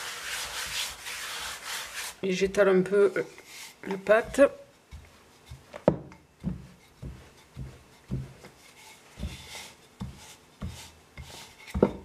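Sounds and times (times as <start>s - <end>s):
rolling pin rubbing dough: 0.0s - 12.0s
rolling pin thudding on dough: 3.8s - 12.0s.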